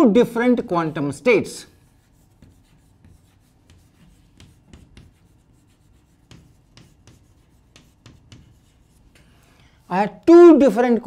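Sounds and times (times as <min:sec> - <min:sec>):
chalk tapping and scratching: 0:01.7 - 0:10.0.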